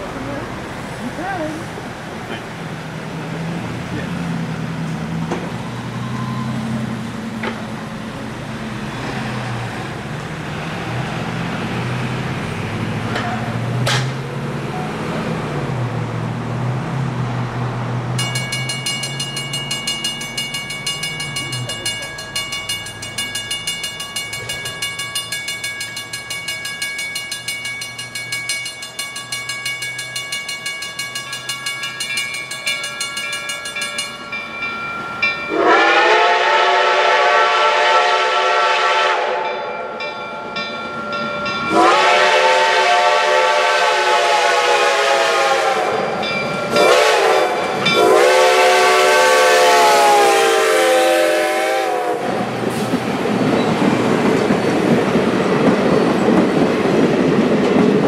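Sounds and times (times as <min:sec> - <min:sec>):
people talking: 0:00.0 - 0:02.5, 0:03.1 - 0:04.2, 0:21.4 - 0:22.2
steam locomotive approaching: 0:00.0 - 0:58.0
steady high tone: 0:18.2 - 0:35.8
locomotive exhaust beats: 0:18.2 - 0:39.5.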